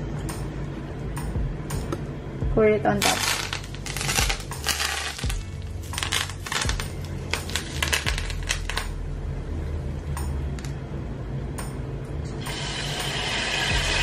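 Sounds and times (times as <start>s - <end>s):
hot oil crackling and popping: 3.0s - 9.0s
liquid sizzling in hot pan: 12.5s - 14.0s.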